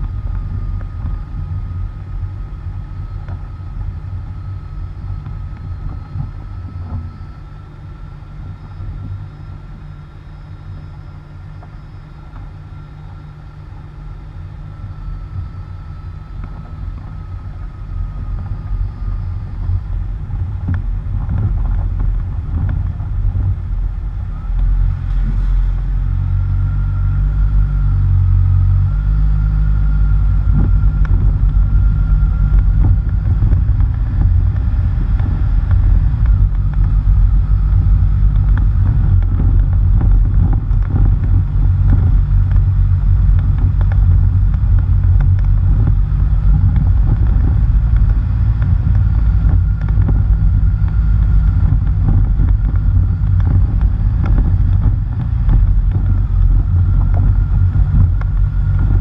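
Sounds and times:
tyres on gravel road: 16.1 - 59.0
wind buffeting: 29.5 - 59.0.

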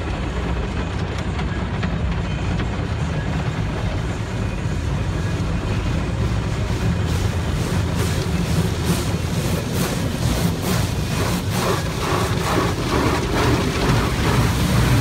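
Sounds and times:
low rumble of wash machinery: 0.0 - 15.0
water spray drumming on car: 5.9 - 15.0
brushes swishing across car: 6.4 - 15.0.

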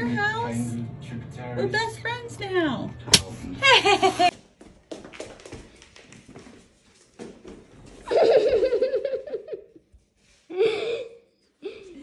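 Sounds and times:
person giggling: 3.7 - 4.3.

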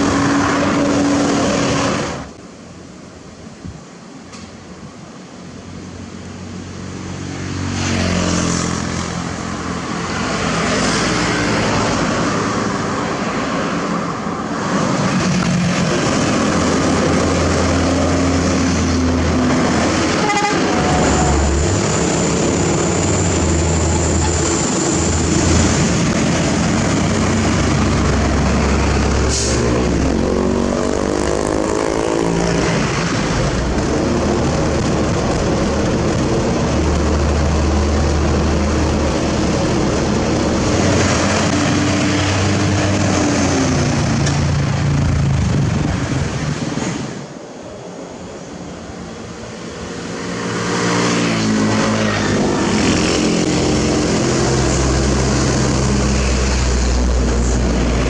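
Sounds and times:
diesel trucks passing: 0.0 - 2.7, 4.4 - 58.0
vehicle horn toot: 20.2 - 20.8.

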